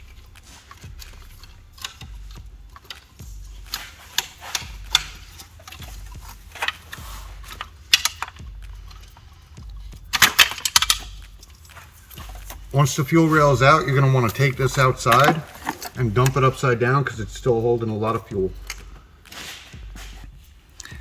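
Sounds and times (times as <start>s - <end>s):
metallic clicks and knocks: 0.0s - 12.8s, 14.0s - 16.6s
low steady hum: 0.0s - 21.0s.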